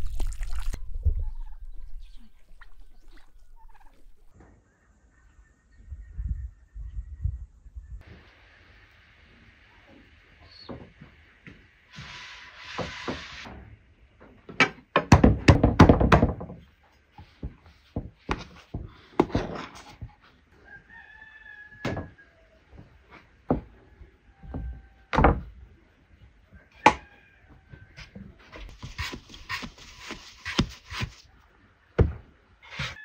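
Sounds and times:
rooster crowing: 20.6s - 22.6s, 26.6s - 28.1s.

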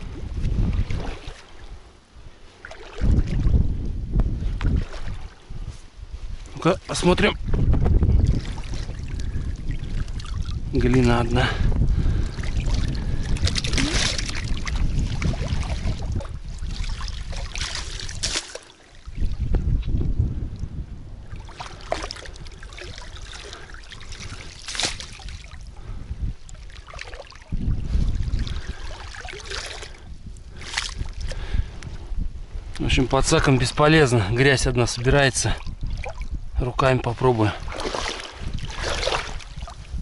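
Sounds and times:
wind rumbling on microphone: 0.0s - 40.0s
net splashing in water: 12.3s - 19.4s, 21.3s - 25.7s, 26.5s - 30.0s, 30.6s - 31.2s, 37.6s - 39.8s.

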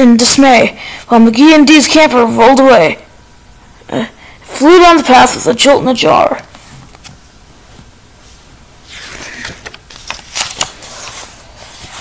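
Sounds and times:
book pages turning: 8.8s - 12.0s.

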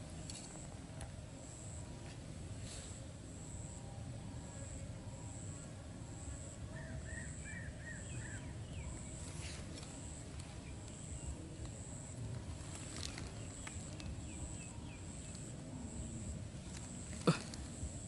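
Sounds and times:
bird chirping: 6.3s - 12.1s.

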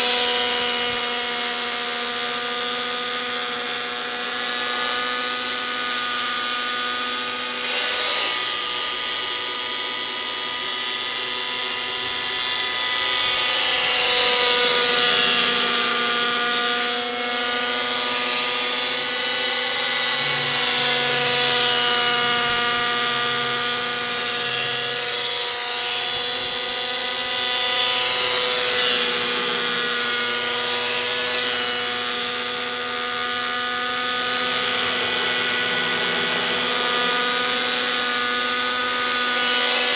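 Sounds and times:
model helicopter engine whining: 0.0s - 39.9s.

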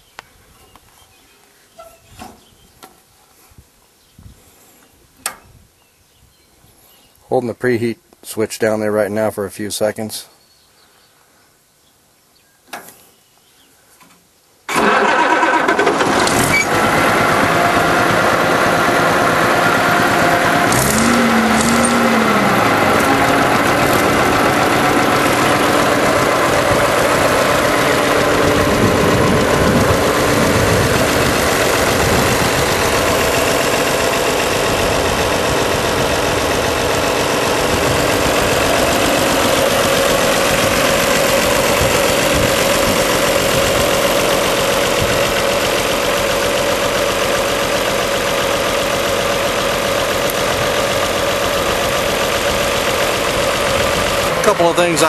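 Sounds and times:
diesel engine idling: 14.7s - 55.0s.

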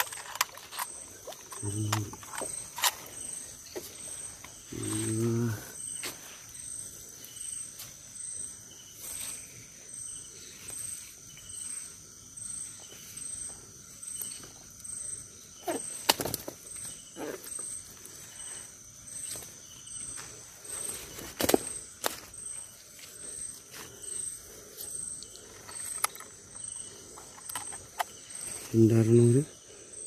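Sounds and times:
crickets chirping: 0.0s - 30.0s.

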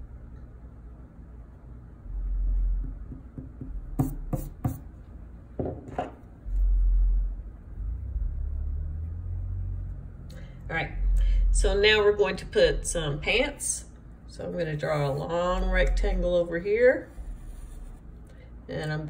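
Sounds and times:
eraser rubbing on paper: 17.0s - 18.1s.

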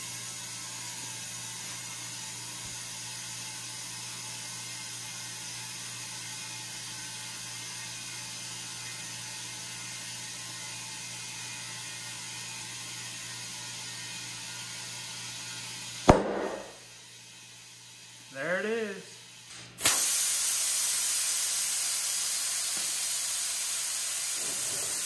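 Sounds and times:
air compressor humming: 15.6s - 25.0s
air hissing through hose: 19.8s - 25.0s.

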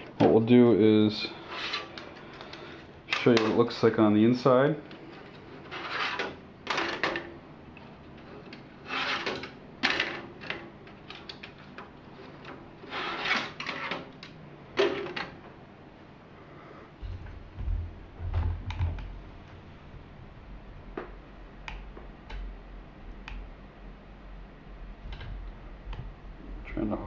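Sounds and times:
server case parts scraping and clattering: 1.2s - 4.0s, 4.9s - 7.4s, 8.0s - 15.4s
low rumble of camera movement: 17.0s - 27.0s.

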